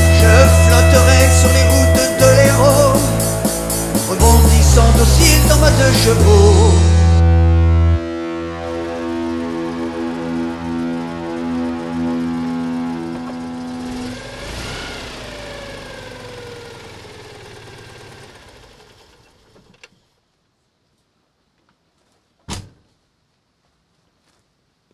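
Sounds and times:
droning tone: 5.6s - 16.9s
car engine passing by: 9.0s - 19.4s.

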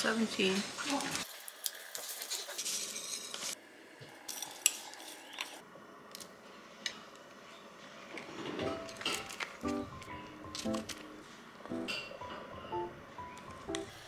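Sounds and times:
cutlery and dishes clinking: 8.6s - 9.8s.

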